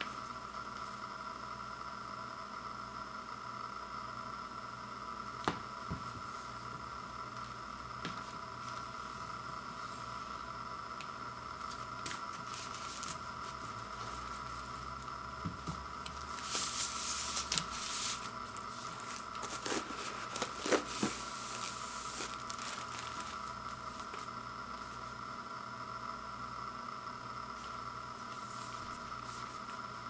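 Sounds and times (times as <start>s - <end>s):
plastic shrink wrap crinkling: 16.1s - 24.3s.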